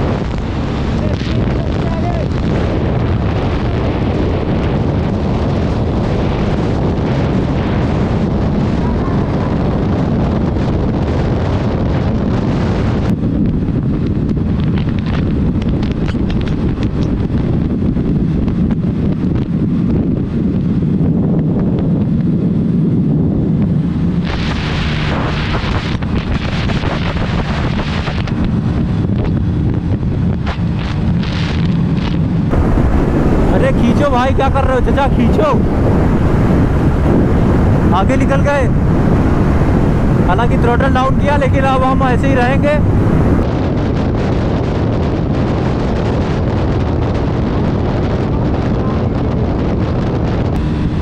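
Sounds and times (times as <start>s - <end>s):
wind buffeting microphone: 0.0s - 51.0s
scooter engine hum: 13.6s - 43.4s, 47.8s - 51.0s.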